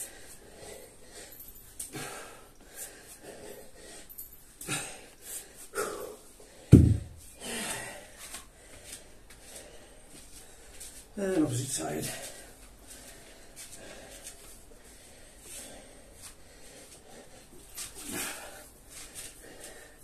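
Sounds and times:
man breathing hard: 0.0s - 11.1s, 12.0s - 20.0s
loud low thud: 6.7s - 7.2s.

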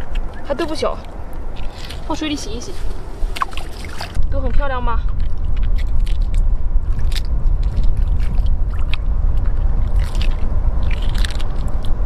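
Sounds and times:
wind rumble on microphone: 0.0s - 12.0s
hands splashing in shallow water: 3.3s - 4.2s.

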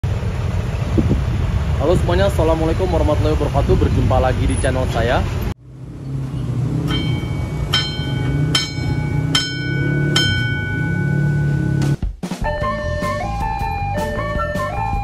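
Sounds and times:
low steady rumble: 0.0s - 12.0s
crossing alarm bell strokes: 6.8s - 12.0s.

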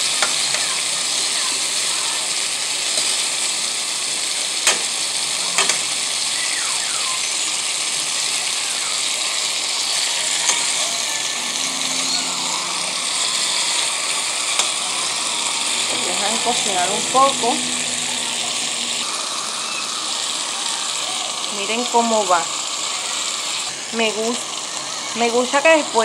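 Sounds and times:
chicken sizzling in a pan: 0.0s - 26.0s.

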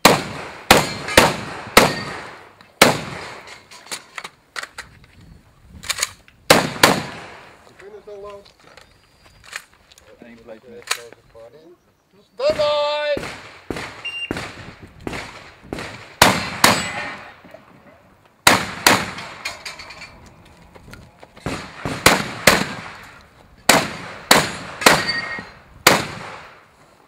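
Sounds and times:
shotgun shots: 0.0s - 3.5s, 6.5s - 7.6s, 12.5s - 17.3s, 18.4s - 19.4s, 21.4s - 26.6s.

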